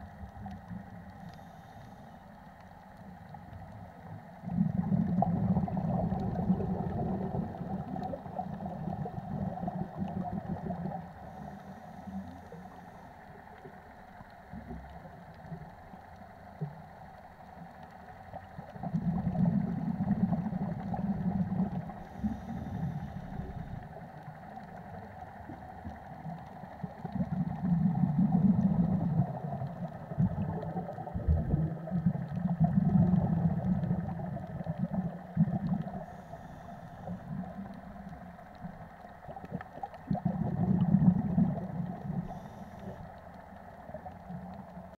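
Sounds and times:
underwater regulator bubbling: 0:04.4 - 0:12.8, 0:18.4 - 0:24.0, 0:25.6 - 0:44.9.

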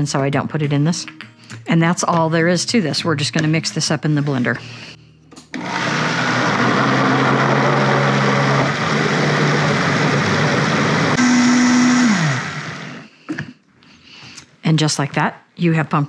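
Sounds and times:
blender running: 0:05.6 - 0:13.1.

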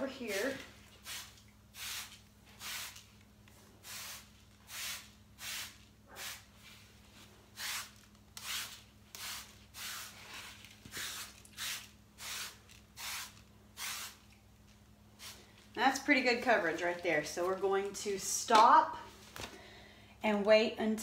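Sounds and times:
spray bottle hissing: 0:01.0 - 0:03.0, 0:03.8 - 0:06.4, 0:07.6 - 0:10.2, 0:10.9 - 0:14.2.

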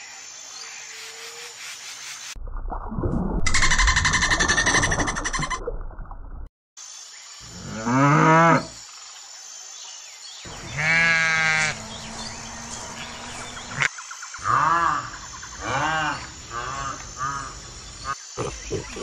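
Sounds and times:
cow mooing: 0:10.5 - 0:13.8
sheep bleating: 0:10.6 - 0:11.9.

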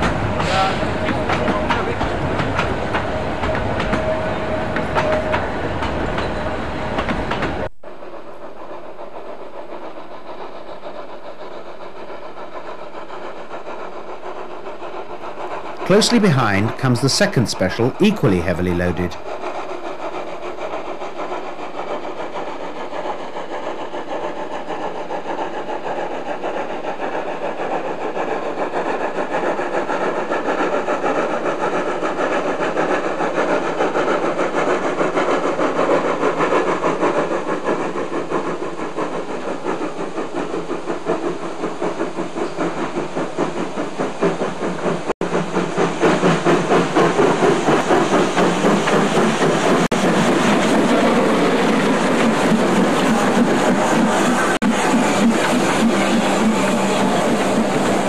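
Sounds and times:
steam locomotive exhaust beat: 0:00.0 - 0:58.0.

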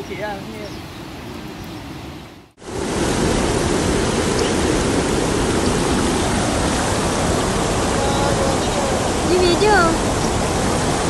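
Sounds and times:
river water rushing over weir: 0:01.9 - 0:11.0.

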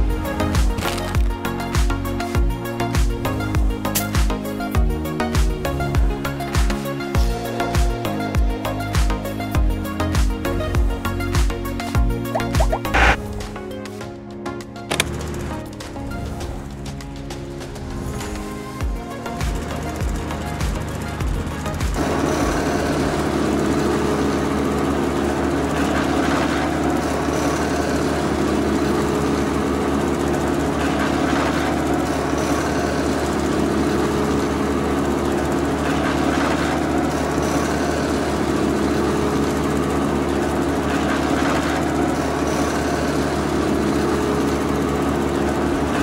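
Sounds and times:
electric motor whirring: 0:12.6 - 0:13.2.

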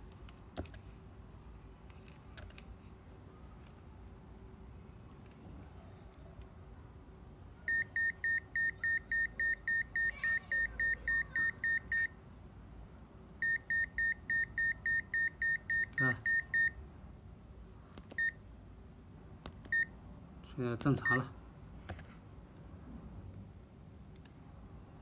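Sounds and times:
multimeter beeping: 0:07.7 - 0:12.1, 0:13.4 - 0:16.8, 0:18.2 - 0:18.4.

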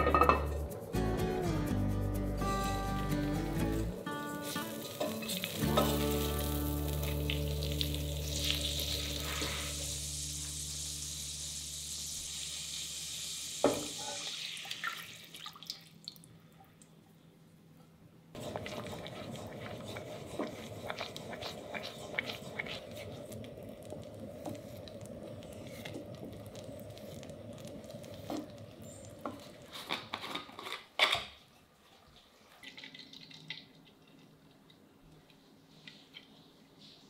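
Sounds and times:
liquid bubbling in a pot: 0:18.4 - 0:30.4
spatula stirring with clicks and splashes: 0:18.4 - 0:30.5.

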